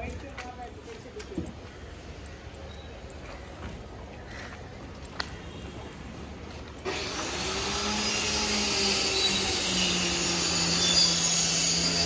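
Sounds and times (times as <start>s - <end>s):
motor machine humming and hissing: 6.8s - 12.0s.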